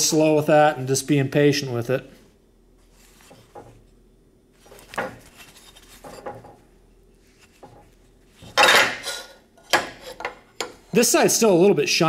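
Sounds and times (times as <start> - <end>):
metal on metal clatter: 8.4 - 10.7.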